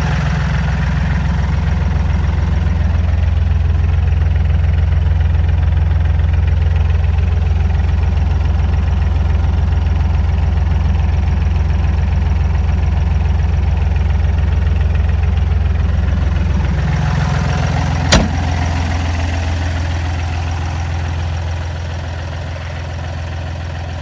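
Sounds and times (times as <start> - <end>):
tractor diesel engine idling: 0.0 - 24.0
sharp knock: 18.1 - 18.6.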